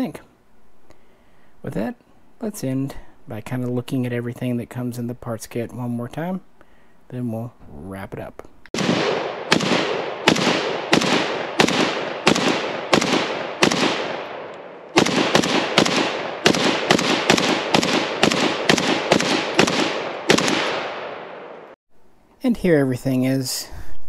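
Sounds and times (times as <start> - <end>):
rifle shots echoing: 8.7 - 21.8.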